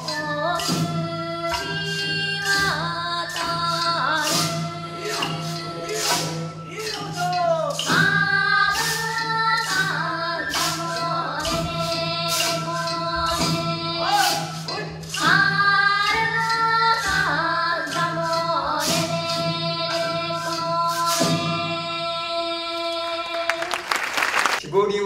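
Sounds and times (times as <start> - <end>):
group singing folk song: 0.0 - 23.5
wooden clappers clacking: 1.5 - 19.0.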